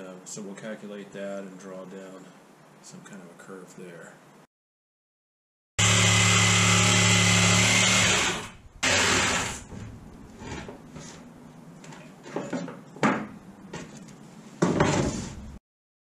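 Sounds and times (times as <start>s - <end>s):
jigsaw motor cutting: 5.8s - 9.7s
knocks and scrapes: 9.2s - 15.6s.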